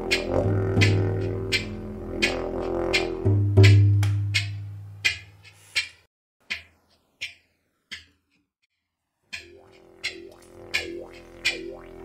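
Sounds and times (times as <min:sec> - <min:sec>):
didgeridoo drone: 0:00.0 - 0:03.7, 0:09.4 - 0:12.0
drum strikes: 0:00.0 - 0:06.7.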